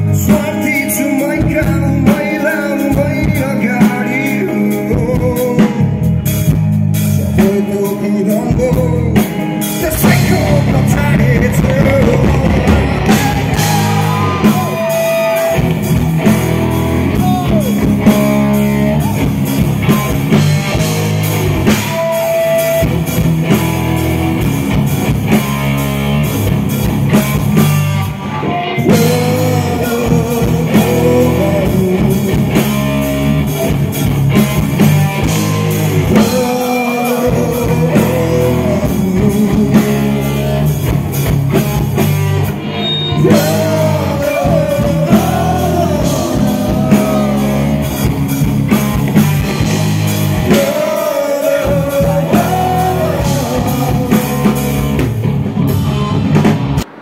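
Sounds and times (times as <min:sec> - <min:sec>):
rock band playing loudly: 0:00.0 - 0:57.0
person singing: 0:07.4 - 0:15.8, 0:17.1 - 0:19.4, 0:28.4 - 0:33.0, 0:36.1 - 0:40.4, 0:43.1 - 0:48.1, 0:50.4 - 0:55.2.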